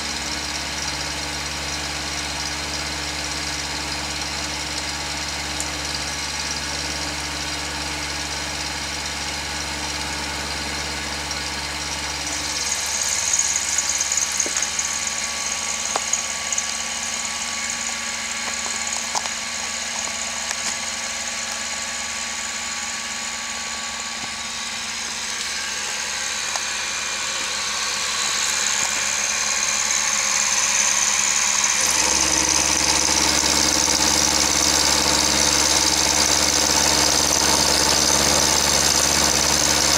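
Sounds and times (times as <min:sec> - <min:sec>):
milling machine cutting steel: 0:12.2 - 0:20.8, 0:25.3 - 0:39.9.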